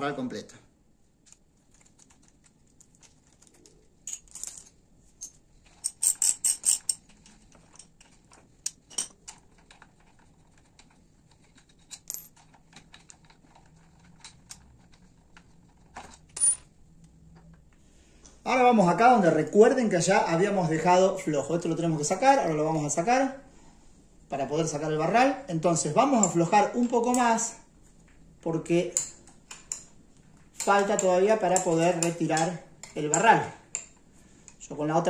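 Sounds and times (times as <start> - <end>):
metallic clicks and clinks: 4.0 - 8.1.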